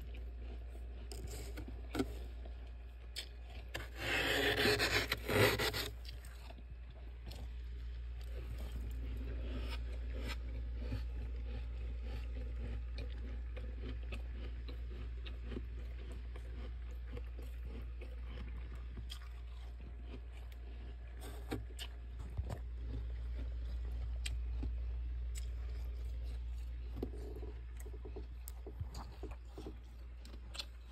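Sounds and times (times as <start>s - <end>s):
steady low hum: 0.0s - 30.9s
spoon scraping frost: 3.6s - 6.4s.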